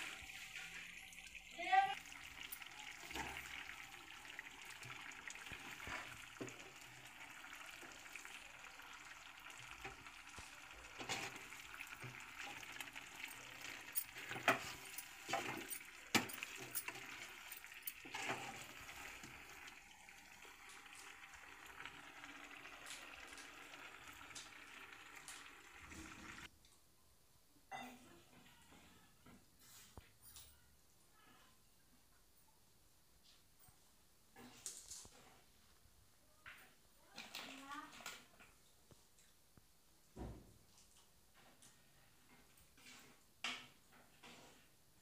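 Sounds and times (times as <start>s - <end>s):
chicken sizzling in a pan: 0.0s - 26.5s
ladle scraping and clinking pan: 10.9s - 19.4s.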